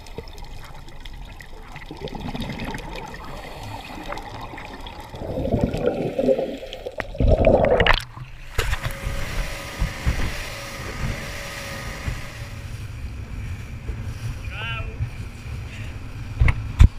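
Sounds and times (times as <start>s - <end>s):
underwater bubbling: 0.0s - 8.6s
rushing water: 0.0s - 12.5s
boat engine hum: 0.0s - 16.8s
wind: 6.8s - 16.9s.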